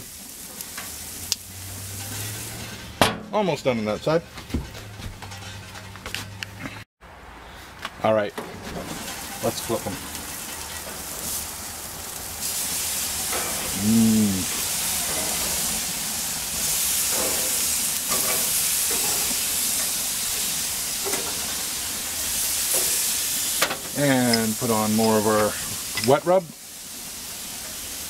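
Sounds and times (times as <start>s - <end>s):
bacon sizzling on a grill: 0.0s - 3.0s, 8.6s - 28.0s
person humming: 13.7s - 14.6s.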